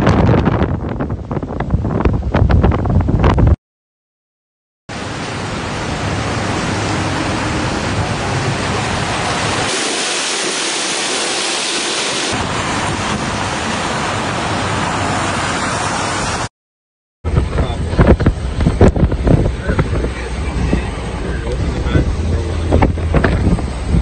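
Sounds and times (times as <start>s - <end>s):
heavy rain and wind hiss: 4.9s - 16.5s, 17.3s - 24.0s
low rumble: 17.3s - 24.0s.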